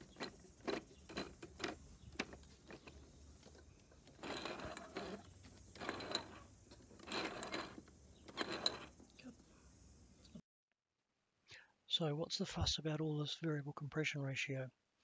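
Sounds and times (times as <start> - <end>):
model engine gears clicking and whirring: 0.0 - 9.2.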